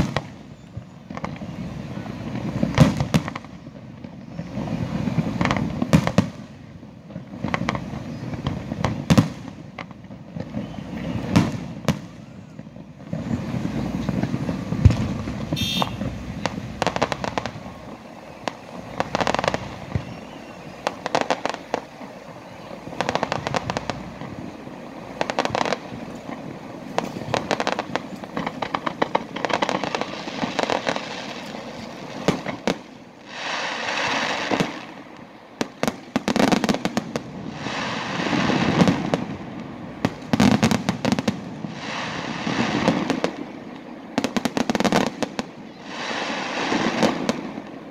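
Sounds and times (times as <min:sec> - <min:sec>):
firework crackling: 0:00.0 - 0:47.9
firework shells bursting: 0:12.8 - 0:47.9.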